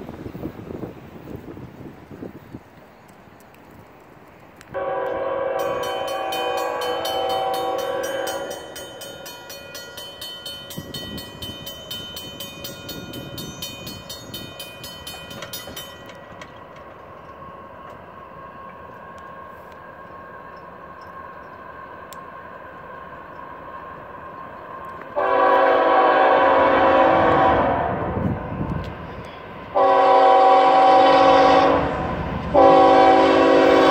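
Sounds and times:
locomotive horn: 4.8s - 8.8s, 25.1s - 28.4s, 29.7s - 33.9s
crossing warning bell ringing: 4.8s - 18.6s.

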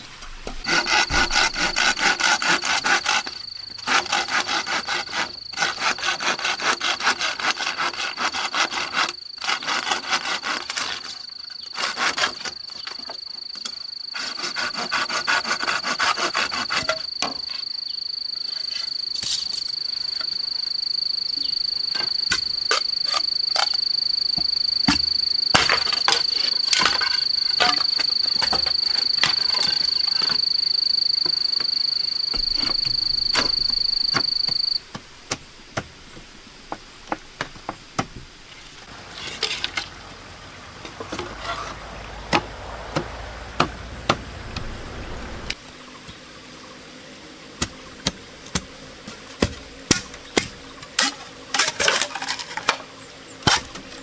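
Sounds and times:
high-pitched insect drone: 0.6s - 34.8s
machete chopping bamboo: 42.3s - 44.7s, 47.6s - 48.7s, 49.4s - 52.8s.

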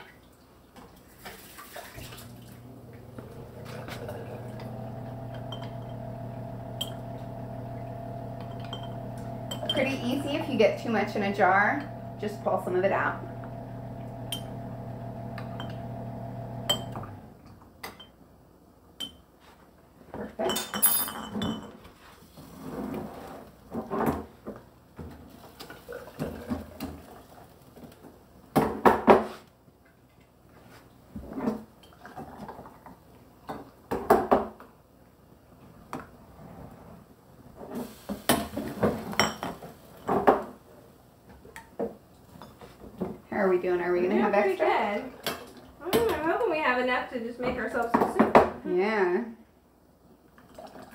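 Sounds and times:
ladle clinking on glass jars: 8.4s - 9.9s, 16.7s - 17.0s.

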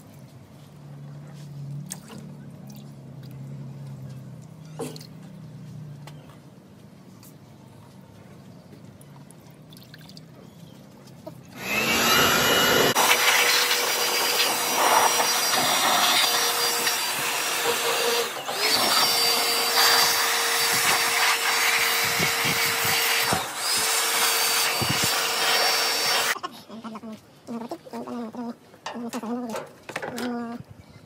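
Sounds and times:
electric blower whining: 11.6s - 26.4s.

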